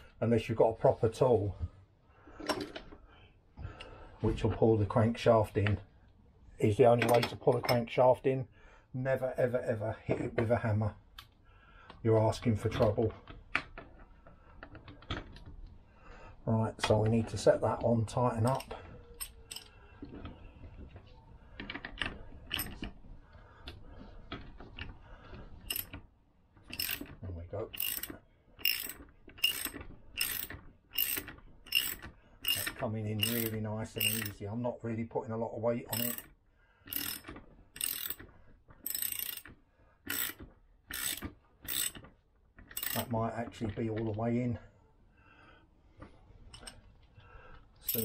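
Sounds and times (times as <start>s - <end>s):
wrench clicking and ticking: 25.7s - 26.0s, 26.7s - 34.4s, 35.9s - 36.3s, 36.9s - 42.1s, 42.7s - 43.1s.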